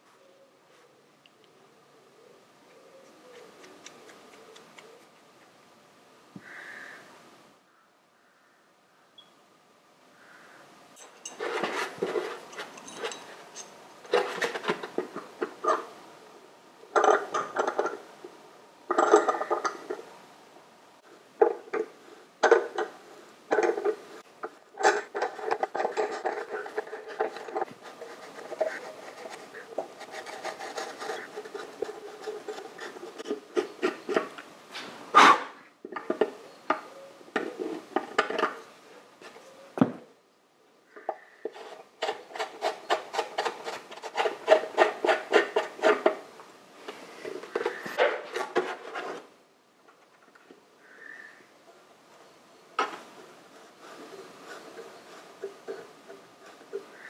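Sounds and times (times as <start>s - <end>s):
hand file rasping: 25.8s - 34.3s, 41.6s - 46.2s.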